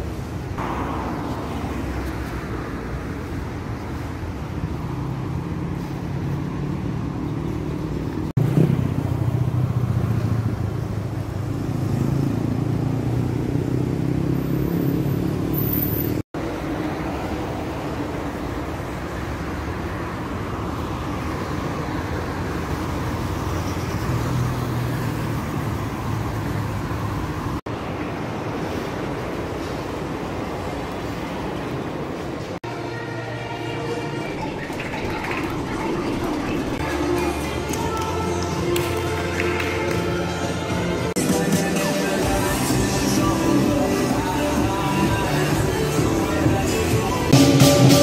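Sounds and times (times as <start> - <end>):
road traffic passing: 0.0 - 48.0.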